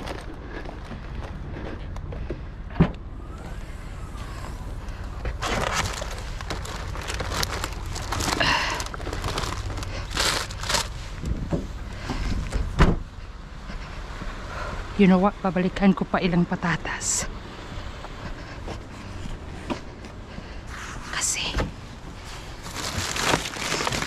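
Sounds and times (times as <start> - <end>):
low steady rumble: 0.0 - 24.0
plastic bags rustling and crinkling: 4.2 - 11.5, 22.2 - 24.0.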